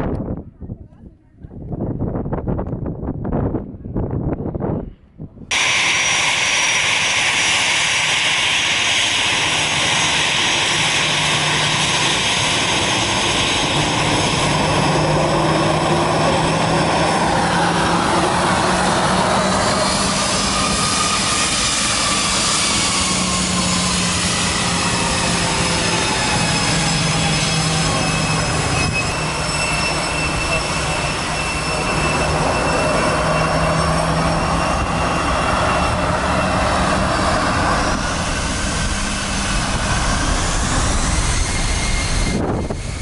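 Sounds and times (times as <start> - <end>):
jet engines roaring with whine: 3.0 - 43.0.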